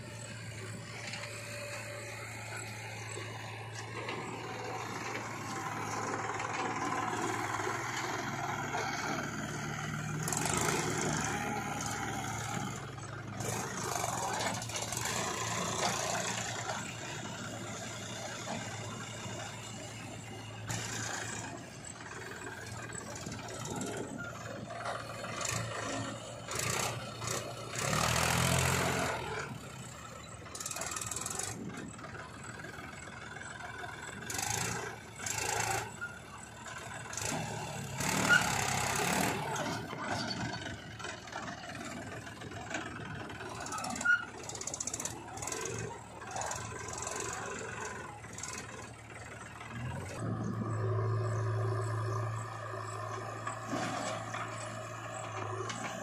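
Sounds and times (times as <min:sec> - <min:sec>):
diesel engines running: 0:00.0 - 0:56.0.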